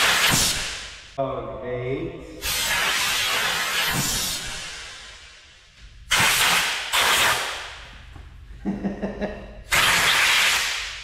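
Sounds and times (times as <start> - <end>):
compressed air blow gun hissing: 6.1 - 7.7.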